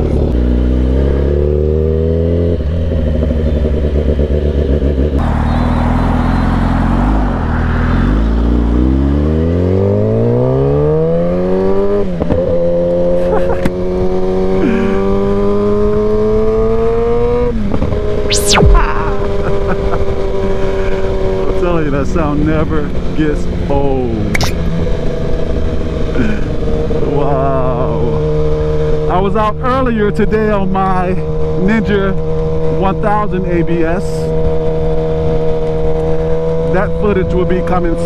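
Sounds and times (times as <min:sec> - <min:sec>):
motorcycle engine accelerating: 0:00.0 - 0:38.0
wind rushing: 0:06.9 - 0:09.5, 0:18.1 - 0:19.9.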